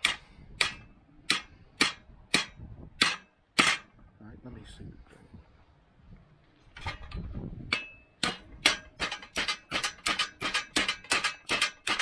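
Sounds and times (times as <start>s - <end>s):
hammer striking steel: 0.0s - 3.9s, 7.7s - 12.0s.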